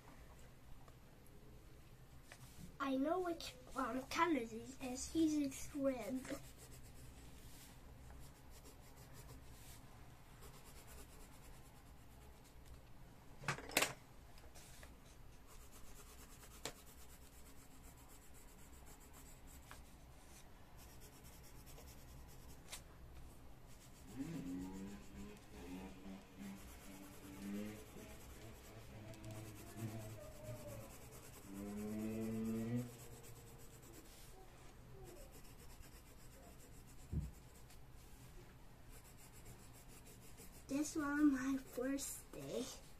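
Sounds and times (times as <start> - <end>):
pencil rubbing on paper: 3.8 - 9.8, 10.4 - 12.5, 15.4 - 22.8, 23.7 - 34.4, 35.0 - 37.8, 38.9 - 42.9.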